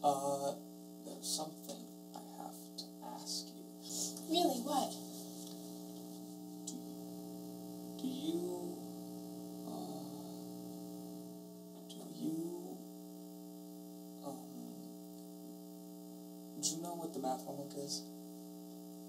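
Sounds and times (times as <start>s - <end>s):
steady electrical hum: 0.0s - 19.0s
hesitant voice sounds: 9.6s - 10.5s.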